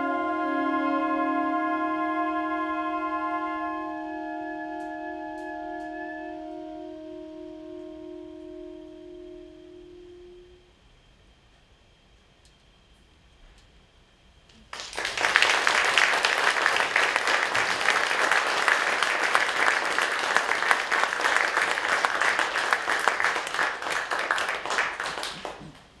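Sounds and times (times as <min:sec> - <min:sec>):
audience applause: 0:14.7 - 0:26.0.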